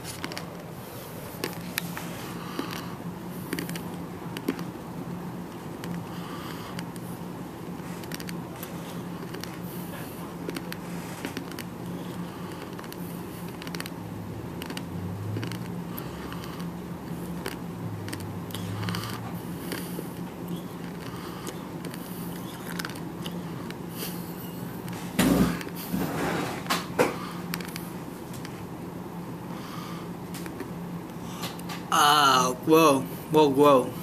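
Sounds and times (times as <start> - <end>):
steady low hum: 0.0 - 34.0
gum chewing mouth clicks: 1.4 - 4.7, 5.8 - 7.1, 8.0 - 24.1, 27.5 - 28.5.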